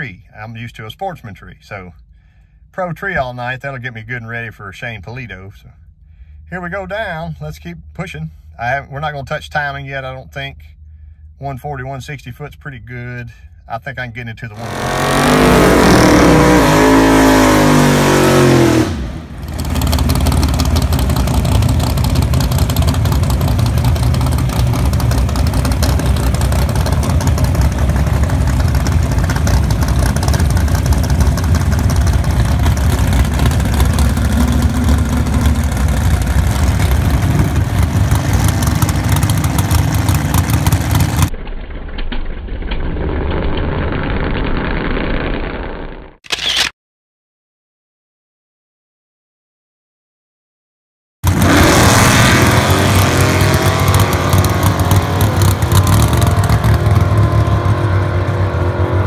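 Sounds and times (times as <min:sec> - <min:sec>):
car engine revving: 0:14.5 - 0:41.3, 0:51.2 - 0:59.0
drag racing engine noise: 0:14.5 - 0:46.7, 0:51.2 - 0:59.0.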